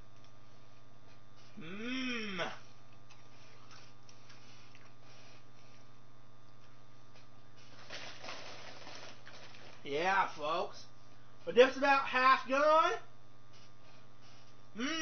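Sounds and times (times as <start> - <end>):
low electrical hum: 0.0 - 15.0
plastic chip bag rustle: 7.6 - 9.9.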